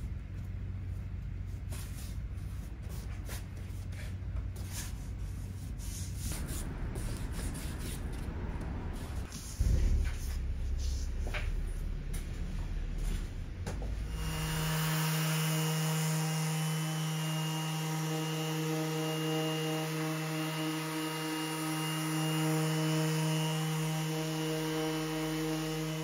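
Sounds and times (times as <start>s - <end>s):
low rumble: 6.2s - 14.7s
orbital sander humming: 13.9s - 26.0s.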